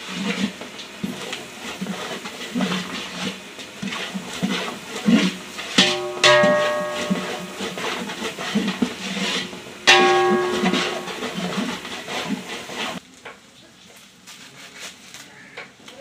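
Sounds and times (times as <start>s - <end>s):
ladle stirring and scraping in pot: 0.0s - 13.0s
metal pot ringing: 5.8s - 12.5s.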